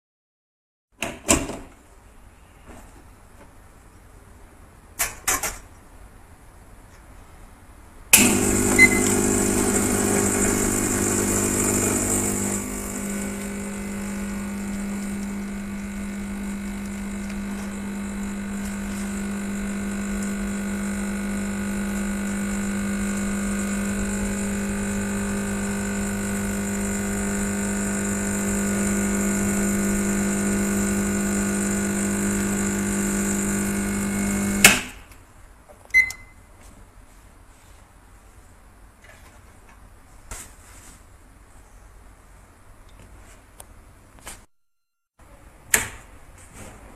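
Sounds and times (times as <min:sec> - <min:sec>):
espresso machine pump humming: 0:08.2 - 0:34.7.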